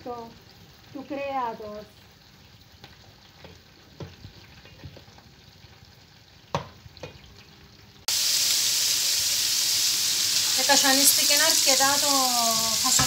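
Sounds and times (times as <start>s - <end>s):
food sizzling: 0.0s - 13.0s.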